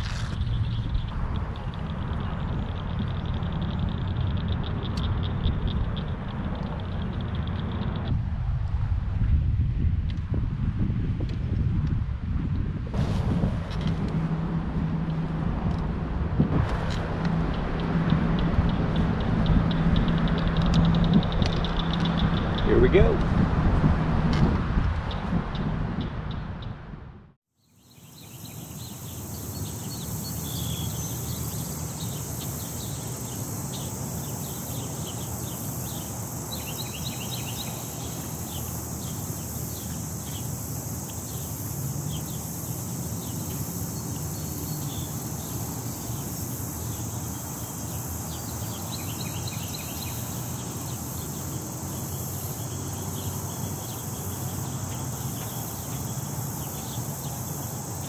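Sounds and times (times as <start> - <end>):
high-pitched insect drone: 0.0 - 8.1, 27.6 - 58.0
wind rumble on microphone: 0.0 - 27.4
small bird chirps: 27.6 - 58.0.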